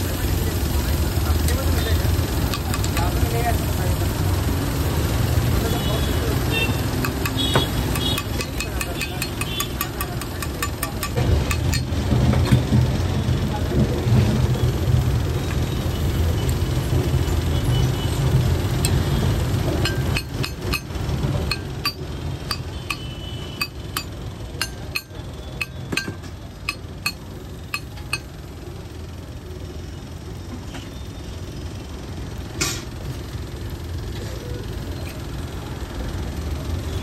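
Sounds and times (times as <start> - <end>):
metal spatula clinking on griddle: 2.5 - 3.2, 7.0 - 12.0, 19.8 - 28.4.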